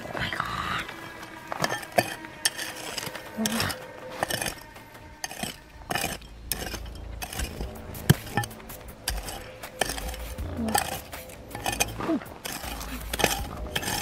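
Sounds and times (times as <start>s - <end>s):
faint steady background tones: 0.0s - 14.0s.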